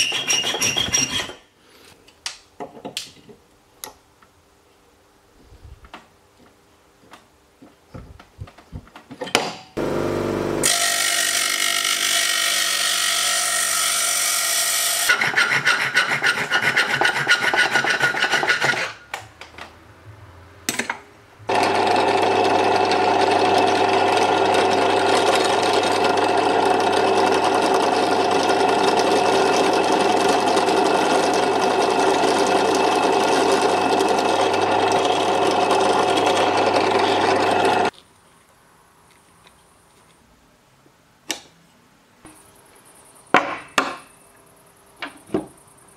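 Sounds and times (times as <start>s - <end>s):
harsh rasping strokes: 0.0s - 1.4s, 15.1s - 19.0s
drill press motor running: 9.8s - 11.6s, 21.5s - 37.9s.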